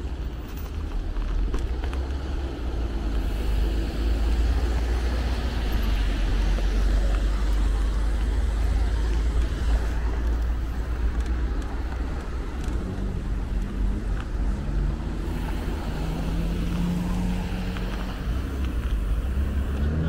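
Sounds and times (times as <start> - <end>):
road traffic rumble: 0.0 - 20.0
passing vehicle engine hum: 1.6 - 20.0.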